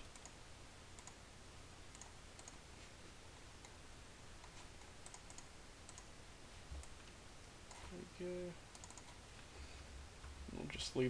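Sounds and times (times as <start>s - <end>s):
computer mouse clicks: 0.0s - 0.4s, 1.0s - 1.2s, 1.9s - 2.6s, 4.4s - 6.1s, 8.7s - 9.2s
low steady hiss and hum: 0.0s - 11.0s.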